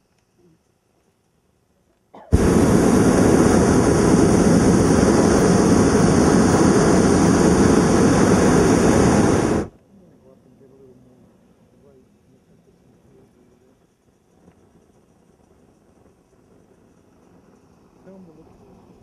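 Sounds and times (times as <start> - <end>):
propane burner rushing blast: 2.3 - 9.7.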